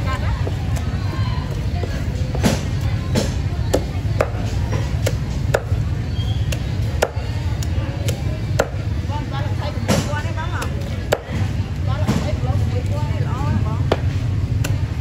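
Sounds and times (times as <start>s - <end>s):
cleaver chopping on wooden block: 1.8s - 5.8s, 6.4s - 8.8s.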